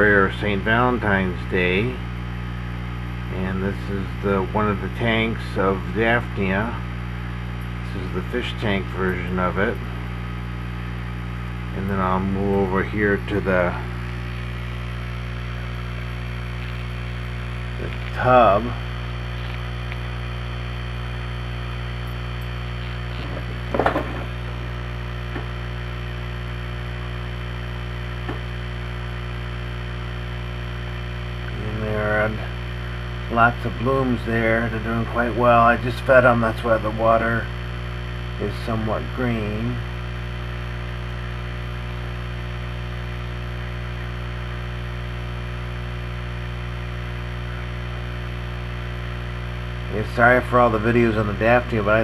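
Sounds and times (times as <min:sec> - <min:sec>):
low electrical hum: 0:00.0 - 0:52.0.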